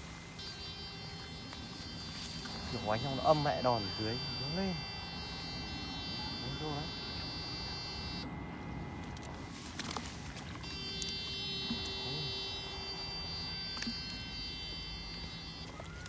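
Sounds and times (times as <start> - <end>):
electrofishing power unit whining: 0.0 - 16.0.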